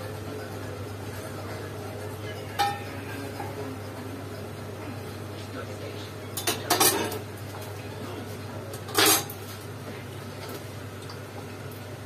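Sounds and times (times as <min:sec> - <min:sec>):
kitchenware clattering: 0:02.4 - 0:03.6, 0:06.4 - 0:07.2, 0:08.9 - 0:09.3.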